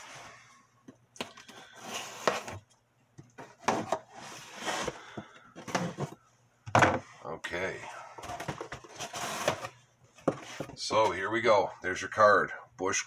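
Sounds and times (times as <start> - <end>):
cardboard scraping: 1.5 - 2.6, 3.4 - 6.2, 8.2 - 10.8.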